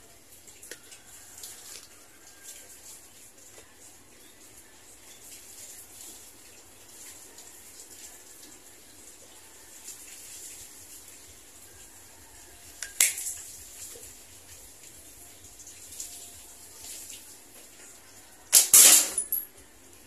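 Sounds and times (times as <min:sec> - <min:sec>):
slingshot rifle handling: 0:18.5 - 0:19.5.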